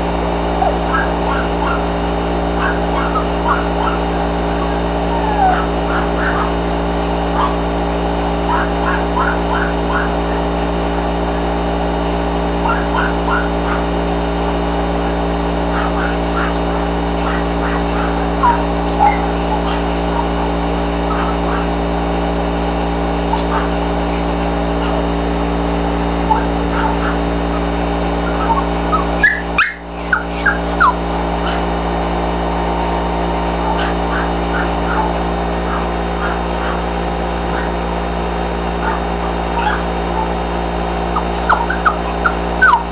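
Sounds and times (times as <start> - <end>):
loud steady hum: 0.0 - 42.9
squeaky calls: 0.4 - 7.7, 8.3 - 10.5, 12.6 - 14.0, 15.0 - 21.9, 23.2 - 23.9, 24.8 - 25.2, 26.2 - 31.8, 32.6 - 37.8, 38.7 - 40.5, 41.1 - 42.9
puppy yipping: 0.5 - 1.9, 2.6 - 6.6, 7.4 - 7.6, 8.5 - 10.2, 12.6 - 13.9, 15.7 - 20.5, 21.1 - 21.8, 23.3 - 23.8, 26.3 - 31.7, 33.6 - 36.9, 37.5 - 37.8, 38.8 - 40.4, 41.2 - 42.9.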